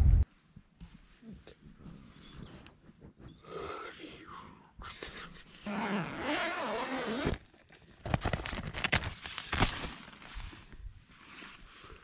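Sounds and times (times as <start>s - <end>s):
tent zip pulled open: 5.6s - 10.5s.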